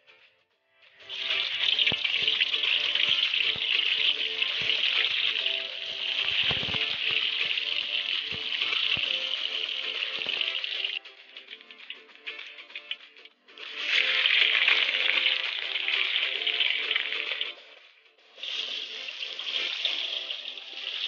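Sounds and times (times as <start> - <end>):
tofu sizzling in hot oil: 1.1 - 11.0, 13.6 - 17.5, 18.4 - 21.0
knocks and pops: 6.2 - 7.6.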